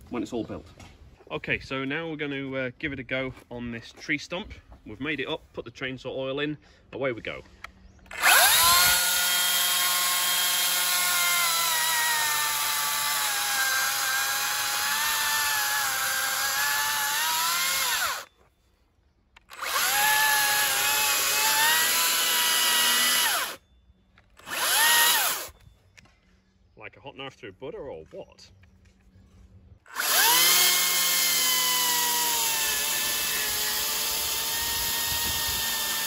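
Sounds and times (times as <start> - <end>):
chainsaw cutting wood: 8.1 - 18.3, 19.4 - 23.6, 24.4 - 25.6, 29.9 - 36.0.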